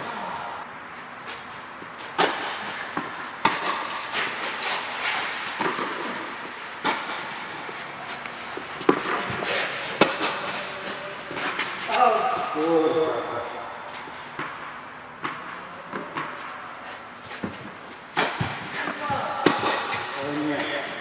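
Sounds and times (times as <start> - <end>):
tennis ball struck by rackets: 2.1 - 7.8, 8.8 - 12.5, 17.4 - 20.2
ball bouncing on court: 2.2 - 4.1, 8.8 - 10.6, 18.2 - 20.8.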